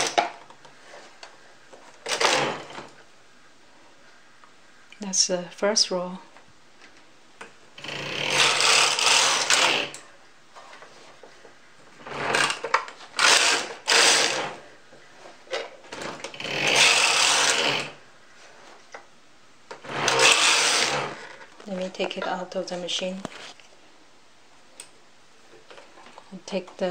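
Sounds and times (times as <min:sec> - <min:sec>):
knitting machine carriage sliding: 0:02.0 - 0:03.0, 0:07.8 - 0:10.0, 0:12.0 - 0:14.6, 0:15.9 - 0:18.0, 0:19.8 - 0:21.5.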